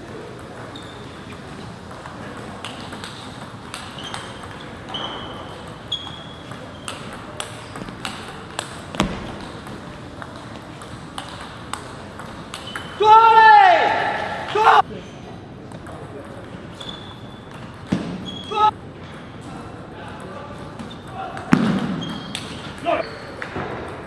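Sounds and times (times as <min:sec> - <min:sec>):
shoe squeaks: 0:00.6 - 0:01.3, 0:03.1 - 0:09.4, 0:16.7 - 0:18.7, 0:20.8 - 0:21.2, 0:21.9 - 0:23.4.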